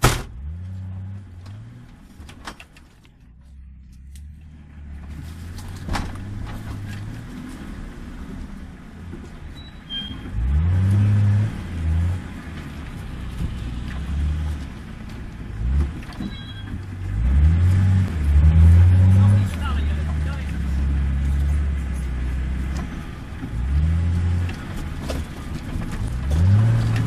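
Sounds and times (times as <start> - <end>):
off-road vehicle engine revving: 0.0 - 2.3, 9.9 - 27.0.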